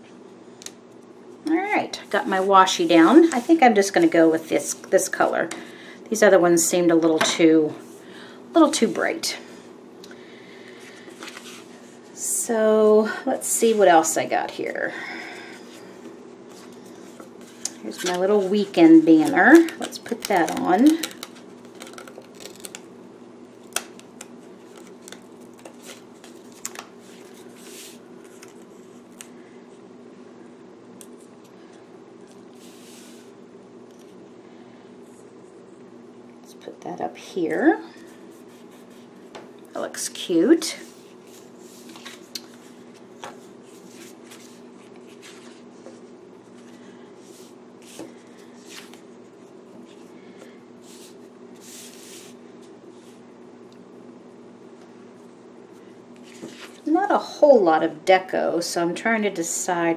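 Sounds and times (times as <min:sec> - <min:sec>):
steady low hum: 0:00.0 - 0:59.9
paper rustling: 0:40.8 - 0:49.0.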